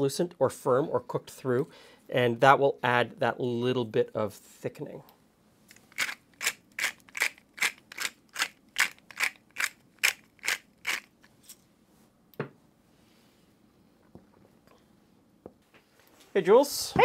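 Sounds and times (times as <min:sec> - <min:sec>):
pepper mill grinding: 0:05.7 - 0:11.2.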